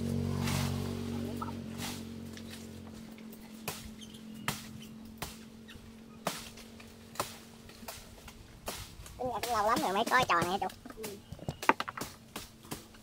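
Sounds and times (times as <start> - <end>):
knife chopping palm stalk: 3.5 - 5.5, 6.2 - 13.0.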